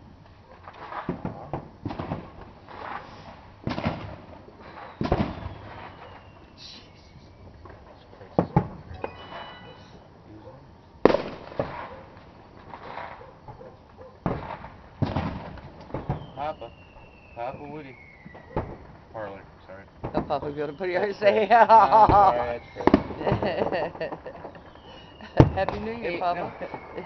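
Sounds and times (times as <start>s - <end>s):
fireworks bangs and booms: 0.0s - 6.5s, 7.1s - 10.0s, 11.0s - 27.0s
firecracker pops: 0.5s - 9.5s, 11.0s - 19.1s, 19.9s - 20.4s, 22.0s - 27.0s
high firework whistle: 2.7s - 7.6s, 8.9s - 10.0s, 14.3s - 21.4s, 22.0s - 27.0s.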